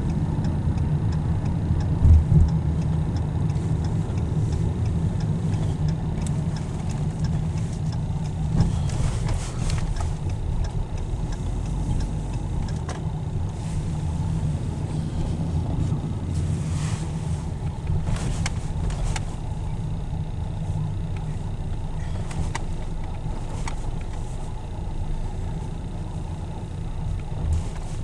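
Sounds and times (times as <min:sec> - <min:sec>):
car engine and tyres rumbling: 0:00.0 - 0:28.0
faint clicks: 0:00.4 - 0:14.8.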